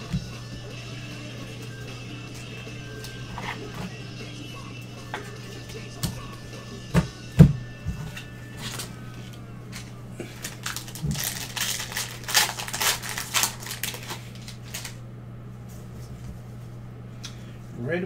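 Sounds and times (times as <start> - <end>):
steady low hum: 0.0 - 18.0
foil wrapper crinkling: 8.6 - 15.0.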